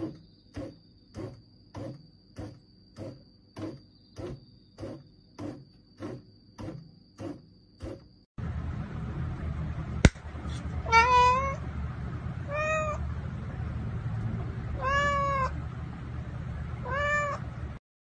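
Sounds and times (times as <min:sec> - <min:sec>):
cat meowing: 0:10.8 - 0:11.6, 0:12.4 - 0:13.0, 0:14.8 - 0:15.5, 0:16.8 - 0:17.4.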